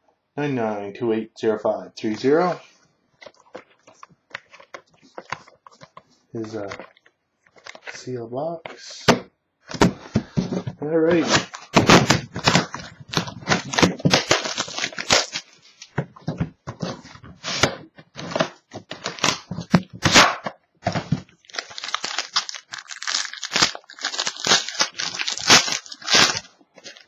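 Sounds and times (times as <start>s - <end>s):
cardboard ripping: 11.1s - 15.4s, 16.8s - 27.0s
wrapper crinkling: 11.4s - 15.9s, 20.9s - 27.0s.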